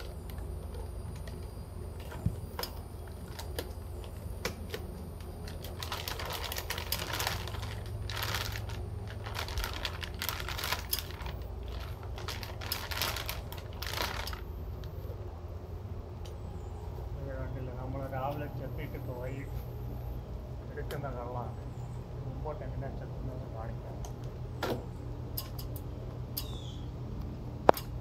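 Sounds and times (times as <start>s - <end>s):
plastic bag crinkling: 0.0s - 15.1s.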